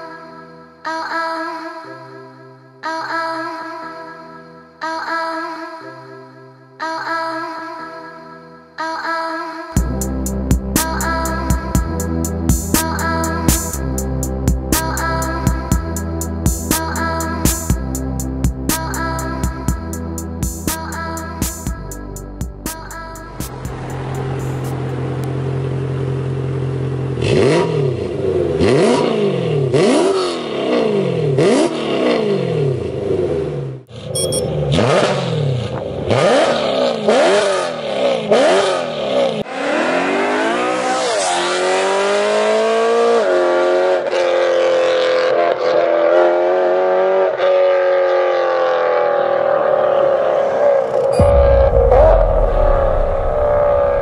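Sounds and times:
car engine revving: 23.3s - 44.8s, 46.2s - 54.0s
car accelerating through gears: 27.1s - 51.4s.

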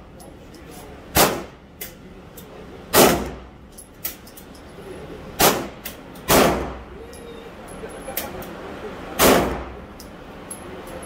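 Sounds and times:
pistol shots with echo: 1.2s - 1.6s, 2.9s - 3.4s, 5.4s - 6.8s, 9.2s - 9.8s.

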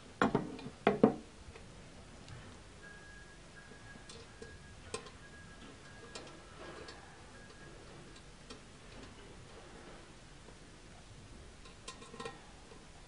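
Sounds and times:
faint steady high tone: 2.5s - 9.4s.

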